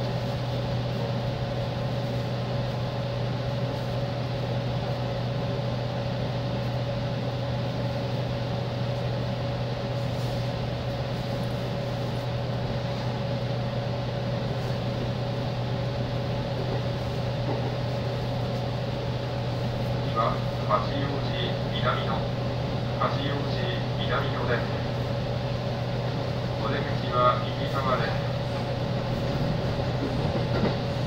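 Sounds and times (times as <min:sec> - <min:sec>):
train interior hum and rumble: 0:00.0 - 0:31.0.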